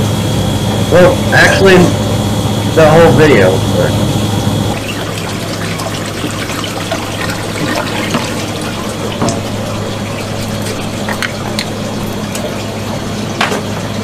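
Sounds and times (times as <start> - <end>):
steady low hum: 0.0 - 14.0
water sloshing and splashing: 4.7 - 14.0.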